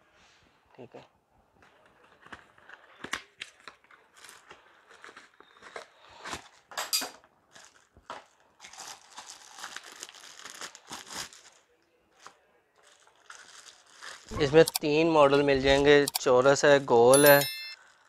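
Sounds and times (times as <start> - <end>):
plastic wrapping crinkling: 7.5 - 15.2, 17.8 - 18.0.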